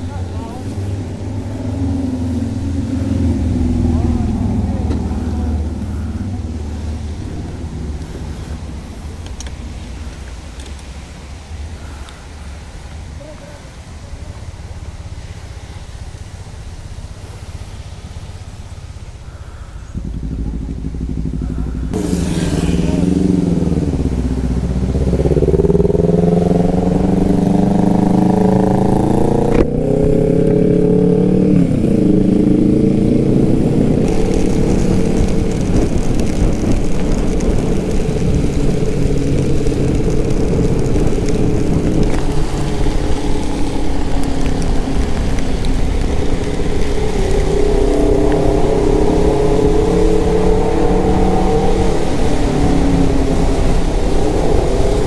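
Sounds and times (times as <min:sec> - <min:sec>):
wind rush on microphone: 0:00.0 - 0:55.0
scooter engine accelerating: 0:20.0 - 0:55.0.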